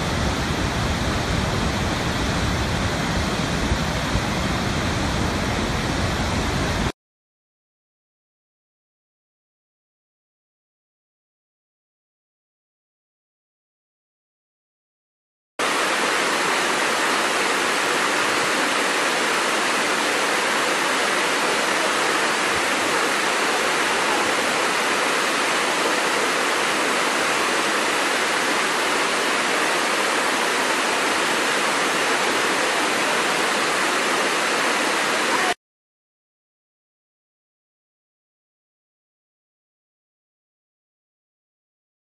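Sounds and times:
waterfall rushing: 0:00.0 - 0:06.9, 0:15.6 - 0:35.6.

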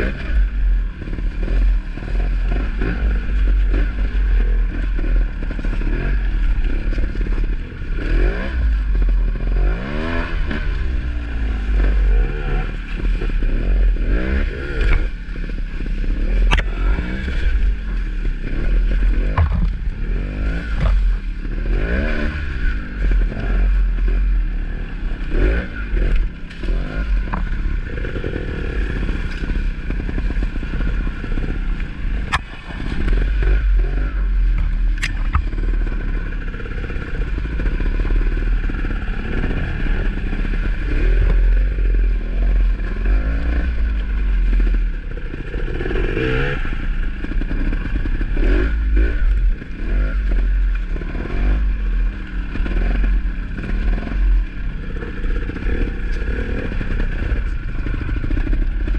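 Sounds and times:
dirt bike engines revving: 0:00.0 - 0:58.9
bikes knocking on rocks: 0:19.2 - 0:21.2.

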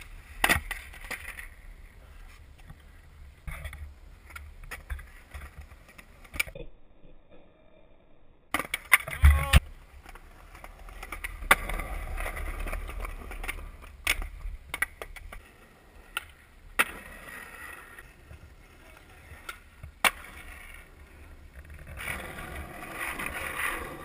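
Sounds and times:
skateboard wheels rolling on concrete: 0:00.0 - 0:06.6, 0:08.5 - 0:24.0
skateboard clacking on pavement: 0:08.6 - 0:24.0.

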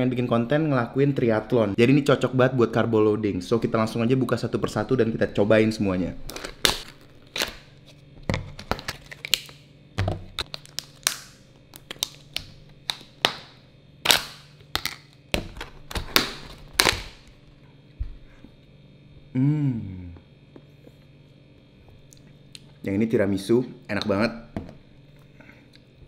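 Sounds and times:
plastic lids crackling and snapping: 0:06.3 - 0:07.6, 0:08.3 - 0:17.3.

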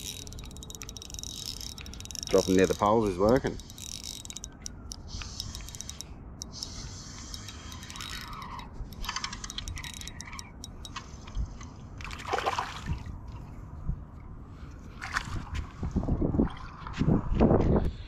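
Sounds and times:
fishing reel ticking: 0:00.0 - 0:11.4.

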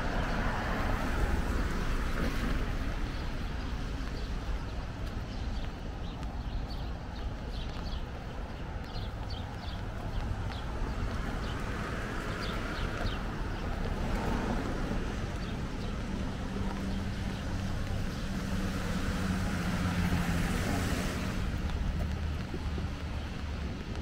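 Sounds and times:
footsteps on wet sidewalk: 0:00.0 - 0:24.0
wind and traffic rumble: 0:00.0 - 0:24.0
car tyres hissing on wet road: 0:18.5 - 0:21.6.

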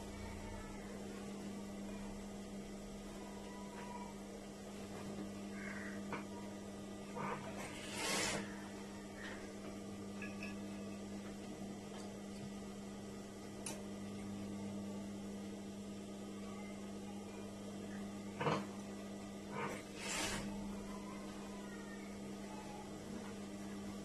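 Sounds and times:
sewing machine motor hum: 0:07.0 - 0:09.8, 0:18.4 - 0:21.4.

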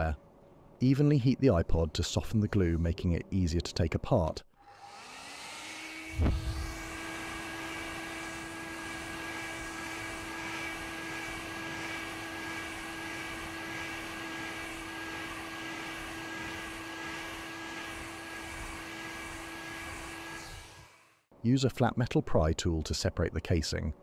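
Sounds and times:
hair dryer running: 0:04.6 - 0:21.3.

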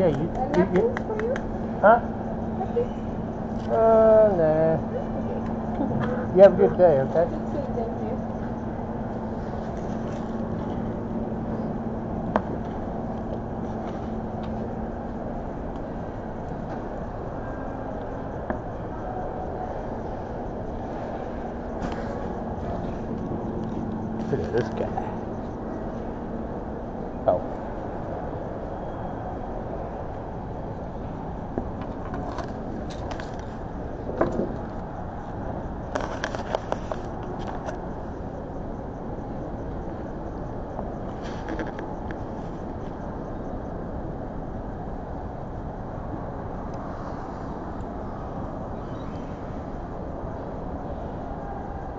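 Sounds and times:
food court background rumble: 0:00.0 - 0:36.2
low hum: 0:00.0 - 0:51.9.

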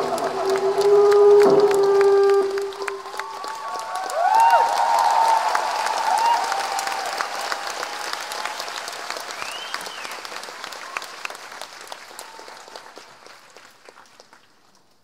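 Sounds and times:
rising and falling whistle: 0:00.0 - 0:04.7
concert audience applauding: 0:00.0 - 0:15.0.

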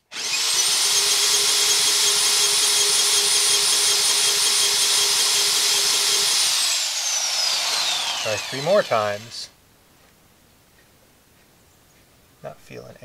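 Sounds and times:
cordless drill cranking engine: 0:00.0 - 0:09.5.

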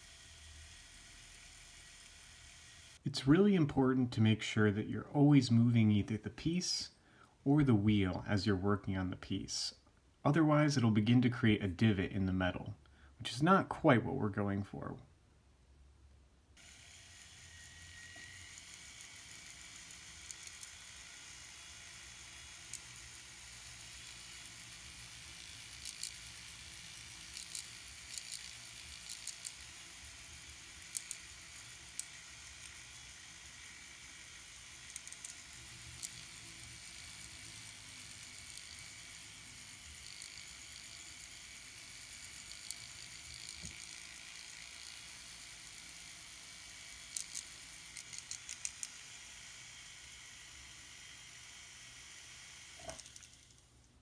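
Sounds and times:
rotary tool polishing wire: 0:00.0 - 0:03.0, 0:16.6 - 0:53.3.

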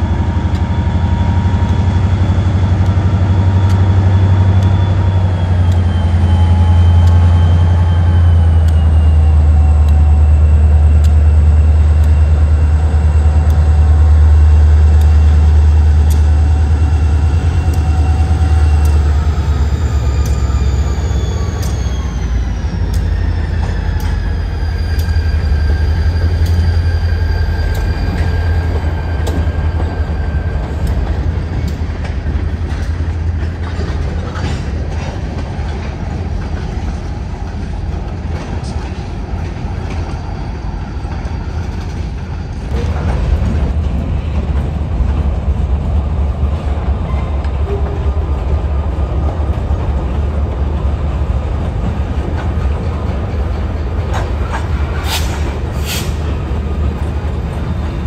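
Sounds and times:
diesel locomotive rumbling past: 0:00.0 - 0:58.0
train wheels clicking over rail joints: 0:00.2 - 0:58.0.

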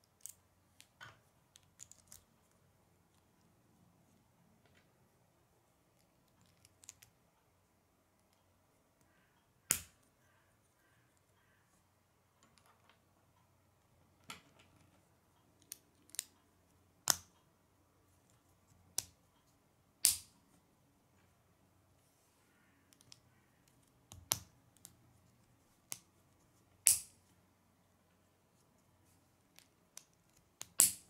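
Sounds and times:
plastic pieces snapping together: 0:20.0 - 0:20.3, 0:26.8 - 0:27.1, 0:29.6 - 0:31.0.

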